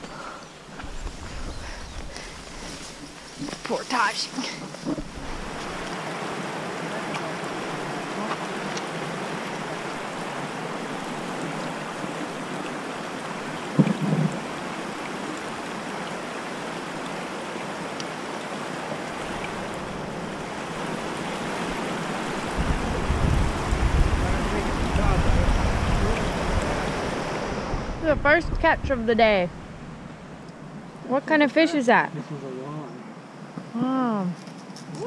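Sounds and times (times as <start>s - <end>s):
river rapids rushing: 2.4s - 28.0s
brief thump: 13.8s - 14.4s.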